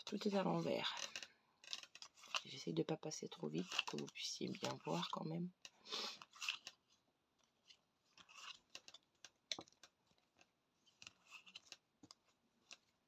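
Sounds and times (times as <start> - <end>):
playing cards sliding: 5.9 - 7.0, 7.6 - 9.0, 10.9 - 11.8
cards tapping and clicking: 7.6 - 12.9.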